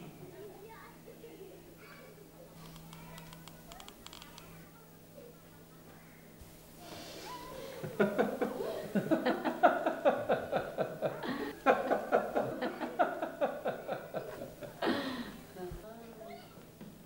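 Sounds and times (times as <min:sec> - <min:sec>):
man and woman laughing: 0:07.8 - 0:15.3.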